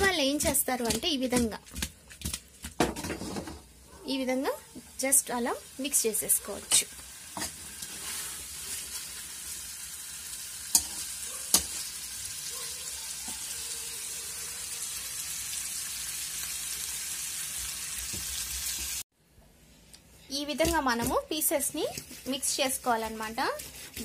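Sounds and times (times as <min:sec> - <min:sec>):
meat sizzling in gravy: 0:04.8 - 0:19.1.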